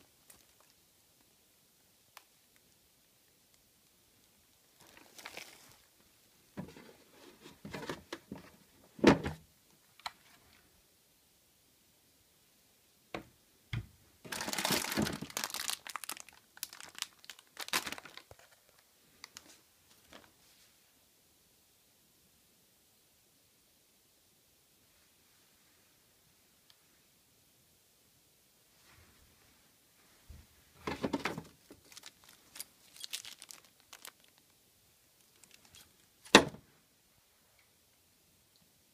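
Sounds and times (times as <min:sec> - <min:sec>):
plastic bag crinkling: 0:00.2 - 0:00.8, 0:04.7 - 0:05.9, 0:14.2 - 0:20.3, 0:31.0 - 0:34.5, 0:35.2 - 0:36.3.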